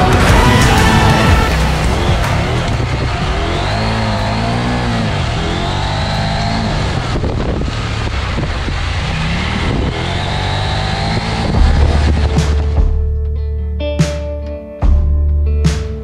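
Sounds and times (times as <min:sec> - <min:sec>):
motorcycle engine revving: 0:00.0 - 0:13.2
deep low boom: 0:11.2 - 0:13.2.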